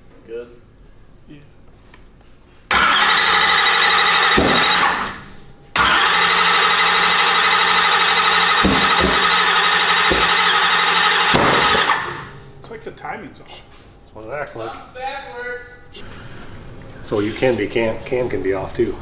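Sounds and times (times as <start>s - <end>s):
starter motor cranking engine: 2.7s - 12.3s
sharp engine pops: 4.3s - 5.2s, 11.3s - 12.1s.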